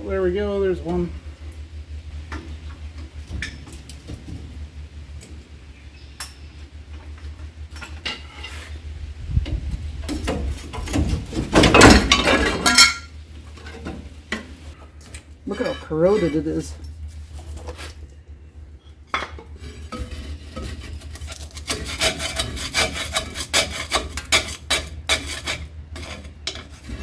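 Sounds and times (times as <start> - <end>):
metal tool scraping on metal: 7.9 - 8.8, 15.5 - 16.7, 19.5 - 27.0.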